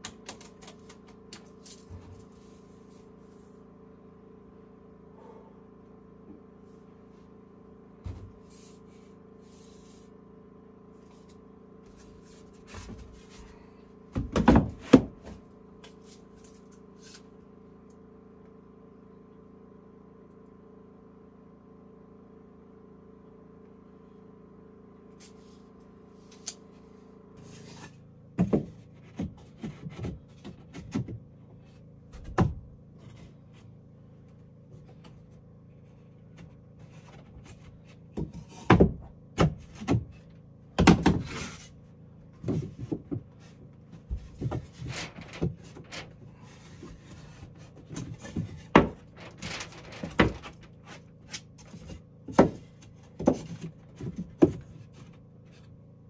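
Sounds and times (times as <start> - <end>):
wooden knocks and thumps: 14.1 - 15.4, 46.7 - 51.0, 51.6 - 54.8.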